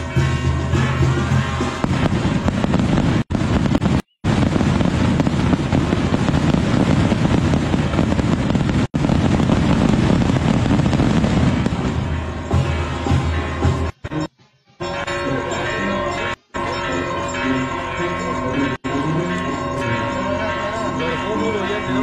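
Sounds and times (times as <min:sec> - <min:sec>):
firecrackers crackling: 0:00.0 - 0:14.0.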